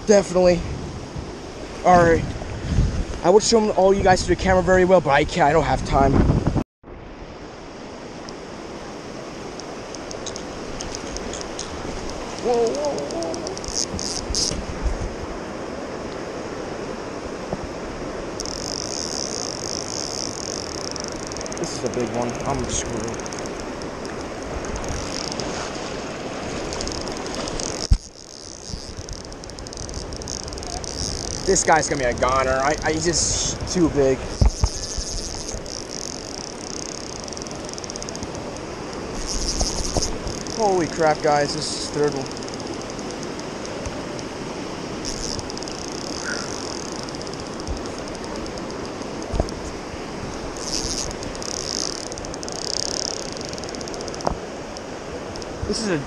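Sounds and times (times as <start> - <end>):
river rapids rushing: 7.6 - 56.0
fly reel ratchet clicking: 9.6 - 14.6, 18.4 - 25.5, 26.7 - 33.0, 34.3 - 40.6, 42.2 - 44.3, 45.0 - 49.6, 50.6 - 55.6
glove rubbing microphone: 34.4 - 36.3.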